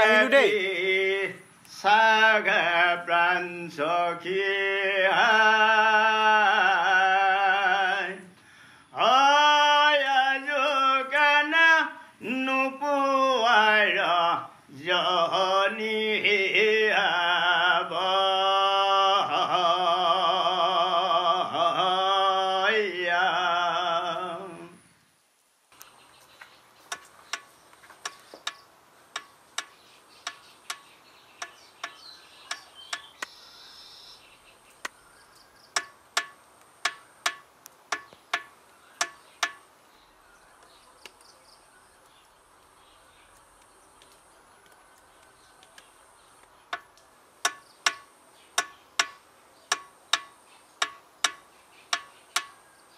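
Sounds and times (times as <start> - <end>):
man singing chant-like song: 0.0 - 8.3, 8.9 - 24.8
faint hiss: 0.0 - 52.9
sharp evenly spaced ticks: 25.7 - 33.5, 34.7 - 39.8, 45.0 - 52.9.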